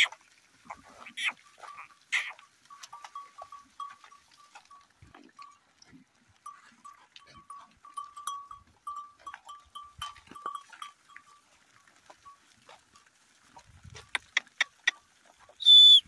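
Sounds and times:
hoof steps: 0.0 - 16.0
small bell clinking: 2.7 - 4.8, 6.5 - 11.4.

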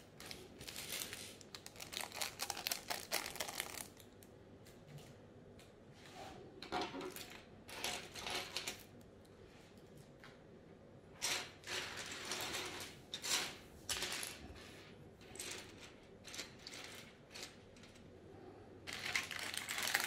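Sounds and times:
plastic bag crinkling: 0.0 - 4.1, 18.9 - 20.0
plastic pieces clicking and rattling: 0.2 - 4.1, 15.3 - 18.0, 18.9 - 20.0.

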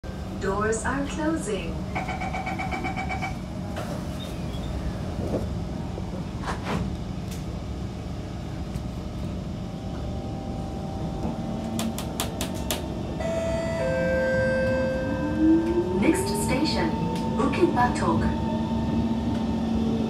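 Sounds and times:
train rumble and hum: 0.0 - 20.0
train door warning beeps: 2.0 - 3.4, 11.2 - 19.0.

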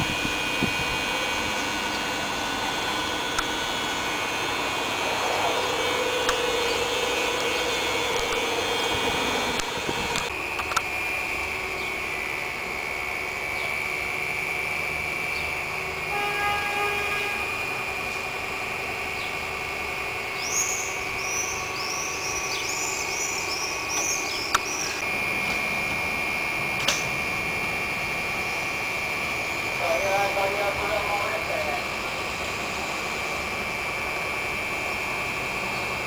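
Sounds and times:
railcar hum and whine: 0.0 - 36.0.

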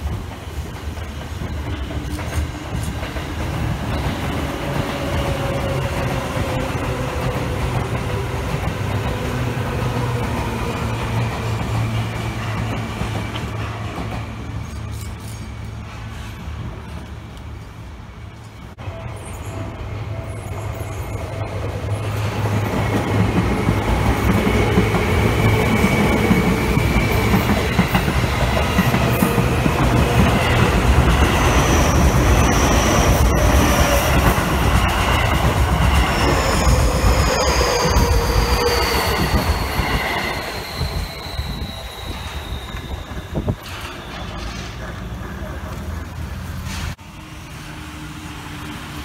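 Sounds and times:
train wheels rumbling on rail: 0.0 - 49.0
high squeals: 24.0 - 45.1.

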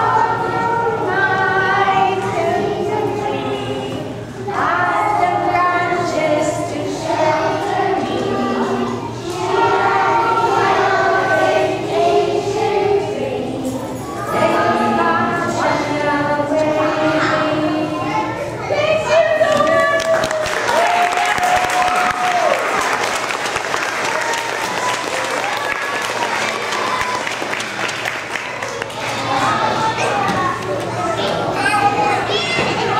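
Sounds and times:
children singing together: 0.0 - 19.2.

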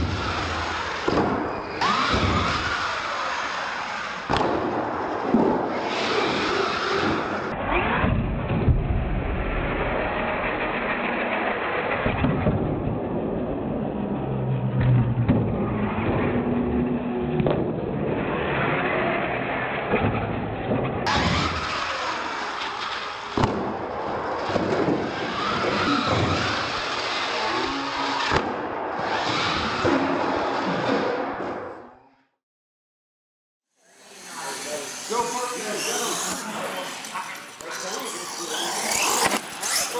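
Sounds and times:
electric motors whining: 0.0 - 7.5, 21.1 - 31.1, 33.8 - 39.9.

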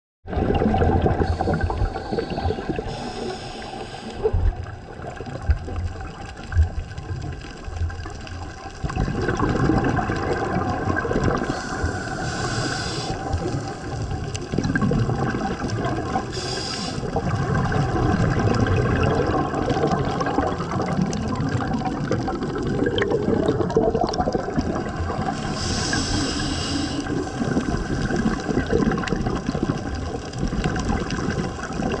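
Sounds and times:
air bubbling underwater: 0.3 - 3.3, 4.2 - 32.0
regulator breathing hisses: 1.3 - 4.4, 11.4 - 14.0, 16.3 - 17.1, 25.4 - 27.6.

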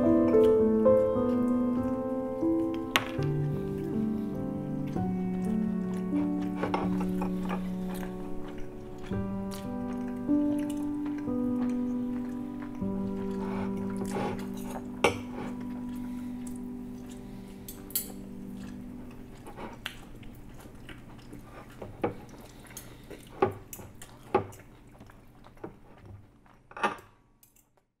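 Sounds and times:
background music chords: 0.0 - 20.0.

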